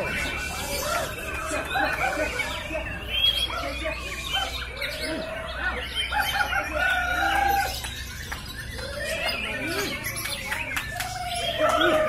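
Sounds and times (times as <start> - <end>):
birds singing whistles and chirps: 0.0 - 12.0.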